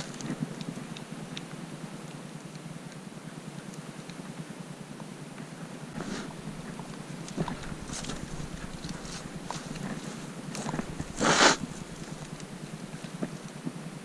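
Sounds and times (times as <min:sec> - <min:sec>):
ticks of brush and stones: 0:00.0 - 0:02.6, 0:05.4 - 0:13.9
steady low rumble: 0:05.8 - 0:13.5
footsteps on dry grass and rocks: 0:05.9 - 0:13.4
scuff of footstep: 0:06.0 - 0:06.8.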